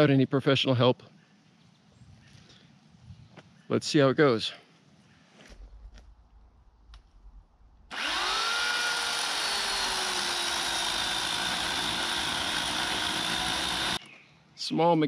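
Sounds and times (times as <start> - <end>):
electric chainsaw cutting tree: 7.9 - 14.0.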